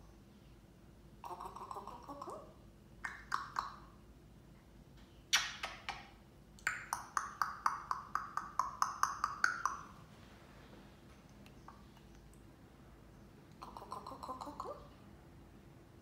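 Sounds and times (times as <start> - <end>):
parrot making pinging clicks: 3.0 - 3.9, 5.3 - 9.9.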